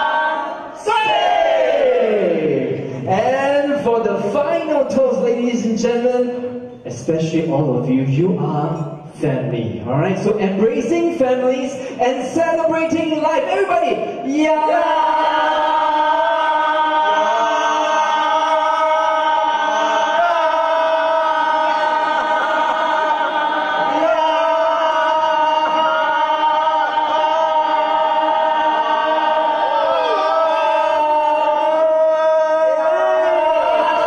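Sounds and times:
crowd shouting a long toast: 0.0s - 2.9s, 14.6s - 34.0s.

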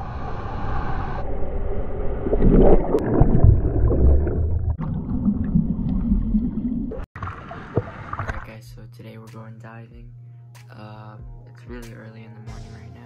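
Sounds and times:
wave crashing underwater: 0.0s - 8.4s.

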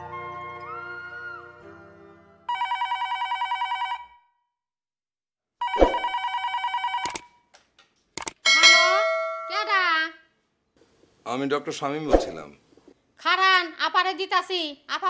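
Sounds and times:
background music: 0.0s - 2.5s
telephone ringing electronic trill: 5.6s - 7.2s.

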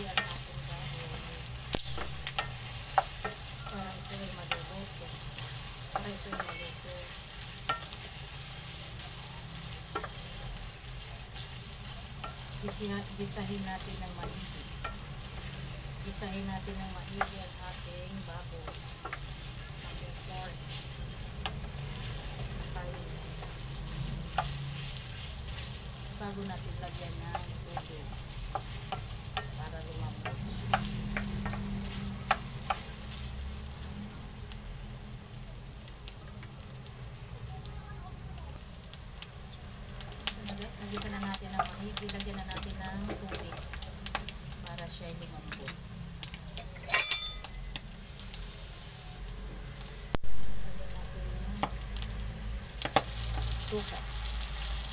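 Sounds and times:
meat sizzling in oil: 0.0s - 54.9s
spatula clacking against pan: 27.3s - 33.0s.

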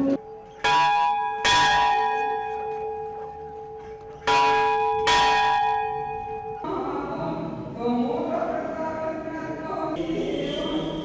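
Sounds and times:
church bell tolling: 0.0s - 7.0s.

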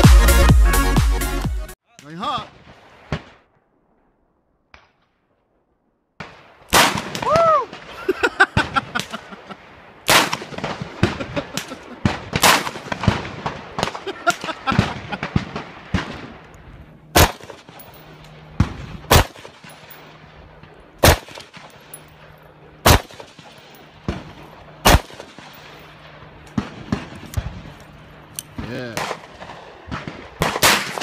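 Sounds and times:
rifle single shots: 6.2s - 31.0s
rapid gunshots echoing: 10.1s - 16.4s, 17.1s - 27.7s, 28.5s - 31.0s
revolver firing: 17.1s - 27.7s.

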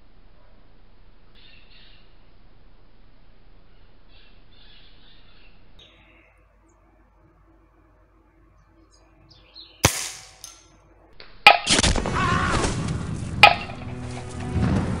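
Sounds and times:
air rifle firing sharp crack: 9.8s - 10.6s.

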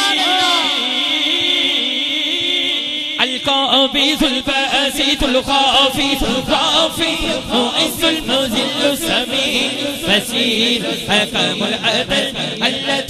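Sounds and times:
man chanting into microphone: 0.0s - 13.0s
voices chanting along: 4.0s - 13.0s.

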